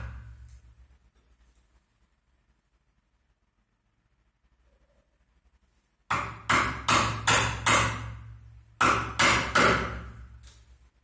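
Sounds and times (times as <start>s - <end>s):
mallet striking chisel handle: 6.1s - 10.2s.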